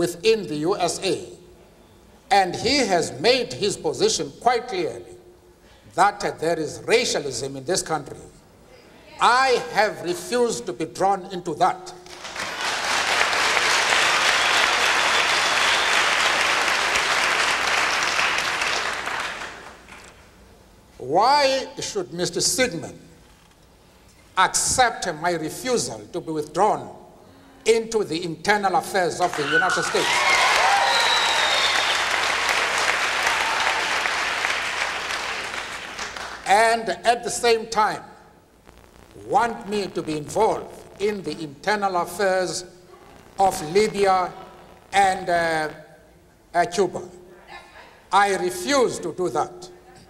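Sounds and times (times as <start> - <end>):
audience applauding: 12.1 - 20.1, 29.2 - 36.4.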